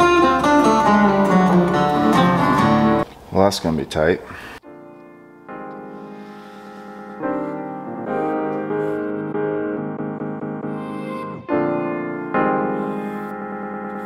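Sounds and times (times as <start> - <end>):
keyboard chords: 0.0 - 3.0, 4.6 - 14.0.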